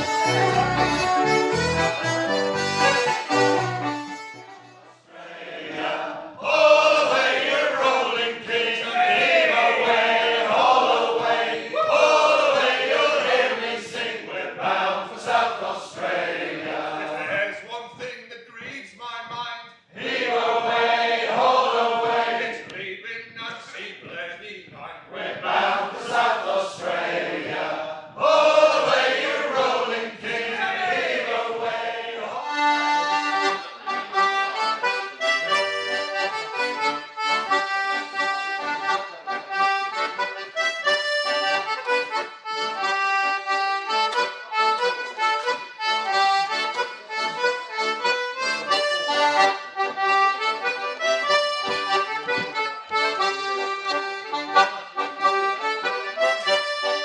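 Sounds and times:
accordion folk dance tune: 0.0 - 18.7, 20.0 - 24.2, 24.8 - 57.0
men singing together: 5.1 - 17.5, 20.0 - 22.6, 25.1 - 32.4.

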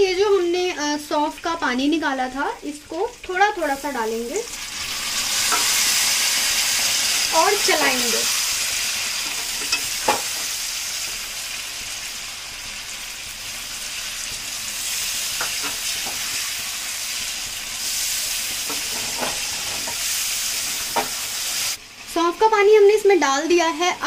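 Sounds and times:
chicken sizzling in a pan: 0.0 - 24.0
spoon scraping and knocking a pan: 18.6 - 20.1.

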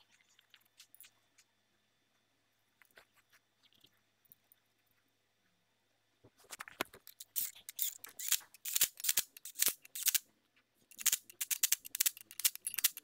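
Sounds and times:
power tool rapid clicking: 7.4 - 10.2, 10.9 - 13.0.

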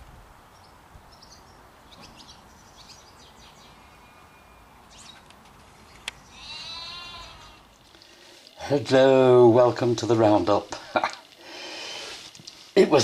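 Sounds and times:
small birds chirping: 0.4 - 9.0
sheep bleating: 6.3 - 7.8.

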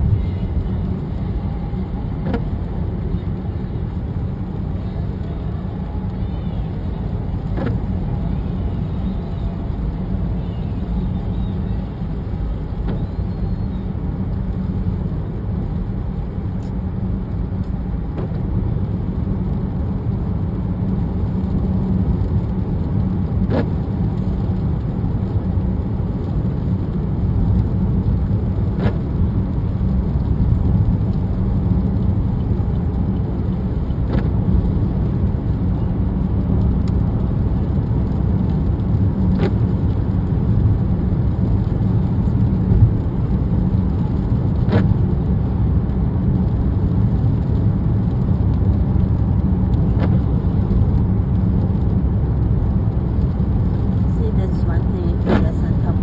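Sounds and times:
windshield wipers sweeping: 0.0 - 14.8, 26.5 - 56.0
road and tyre rumble: 0.0 - 56.0.

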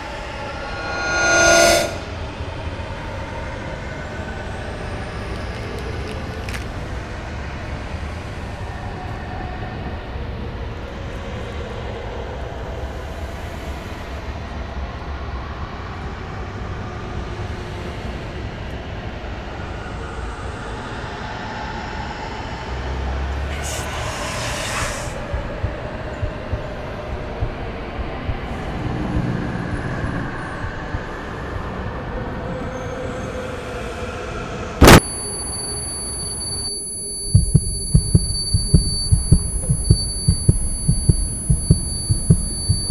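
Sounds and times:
faint steady tones: 23.6 - 31.4, 34.8 - 42.9.

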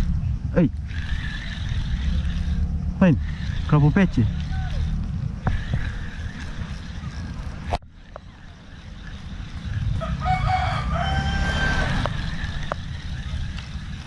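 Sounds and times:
wind rumble on microphone: 0.0 - 14.0
rooster crowing: 9.9 - 12.6.

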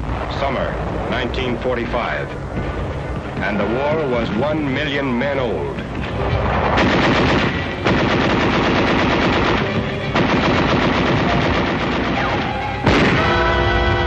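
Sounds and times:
loud blast: 6.3 - 14.0
machine-gun fire: 6.6 - 13.6
orchestral music: 8.9 - 14.0.

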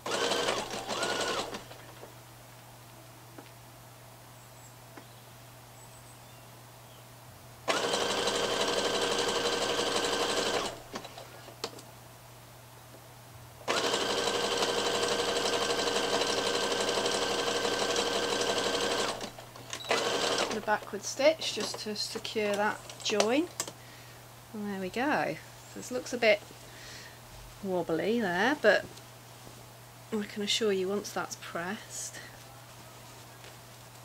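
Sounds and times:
sewing machine stitching: 0.0 - 1.8, 7.7 - 11.3, 13.7 - 20.8.

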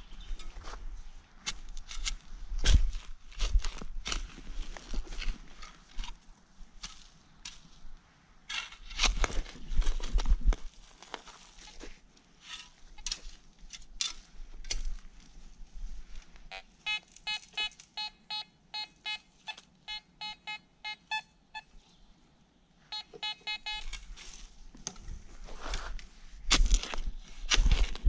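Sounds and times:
metal detector short beeps: 16.5 - 21.7, 22.9 - 24.1.

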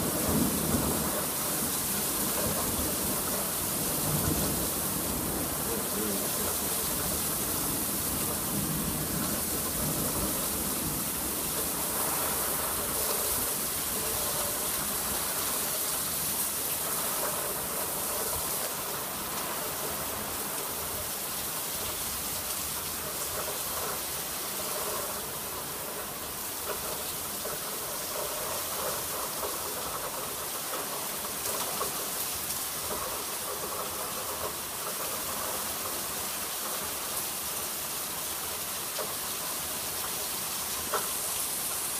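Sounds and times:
heavy rain falling: 0.0 - 41.9.

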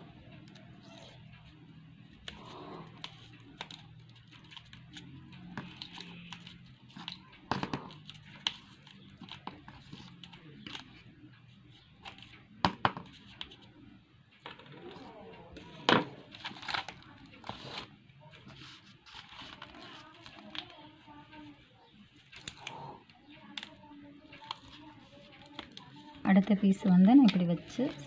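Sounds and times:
paper and cardboard crinkling: 2.2 - 11.0, 14.8 - 21.6, 23.4 - 28.0.

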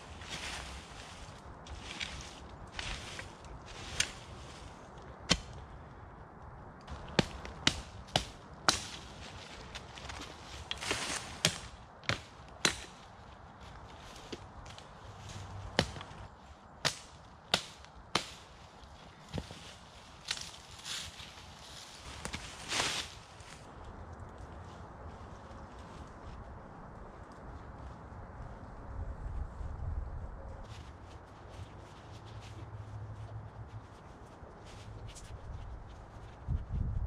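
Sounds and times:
axe chopping branches: 5.2 - 5.6, 6.9 - 13.0, 15.7 - 16.2, 16.8 - 18.6.

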